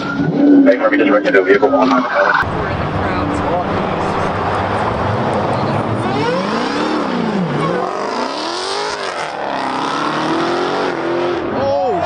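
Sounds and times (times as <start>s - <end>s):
car engine revving hard: 2.7s - 11.5s.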